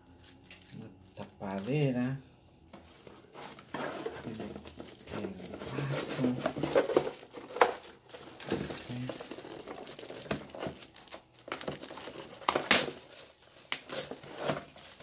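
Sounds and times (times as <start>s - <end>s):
plastic wrap crinkling: 0.0s - 2.1s, 2.8s - 15.0s
cardboard box rustling and scraping: 2.8s - 10.9s, 11.7s - 15.0s.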